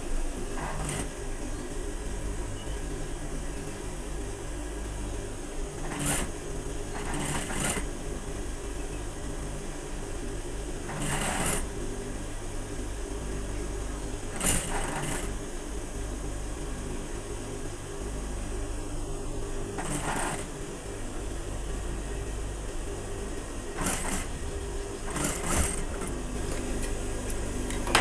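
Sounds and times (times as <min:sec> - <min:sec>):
sewing machine motor hum: 0:00.0 - 0:28.0
sewing machine stitching: 0:00.6 - 0:01.2, 0:05.8 - 0:08.0, 0:10.8 - 0:11.8, 0:14.2 - 0:15.4, 0:19.8 - 0:20.7, 0:23.7 - 0:27.0.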